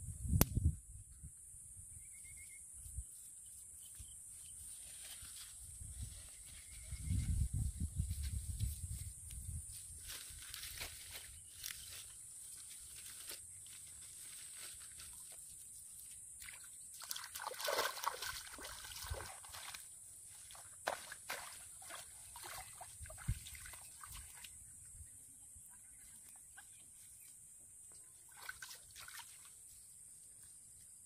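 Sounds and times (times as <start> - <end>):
water plants rustling and crunching: 4.6 - 7.2, 7.8 - 24.6
muddy water sloshing: 16.4 - 24.7, 28.2 - 29.6.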